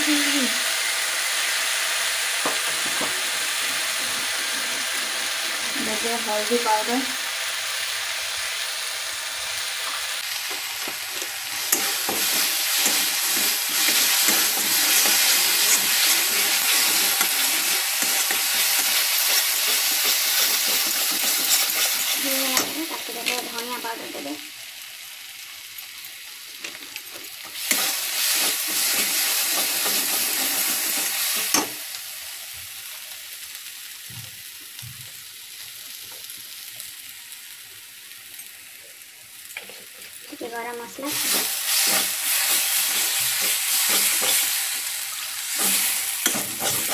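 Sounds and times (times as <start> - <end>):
paste sizzling in hot oil: 0.0 - 46.9
metal spatula scraping: 10.8 - 23.5, 41.1 - 44.6, 45.5 - 46.9.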